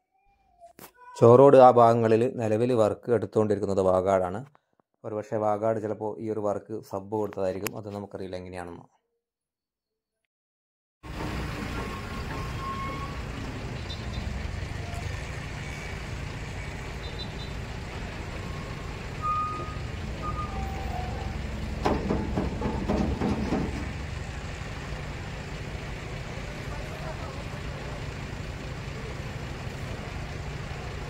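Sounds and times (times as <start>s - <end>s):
diesel engine running: 11.0s - 31.0s
short warning beeps: 18.5s - 21.4s.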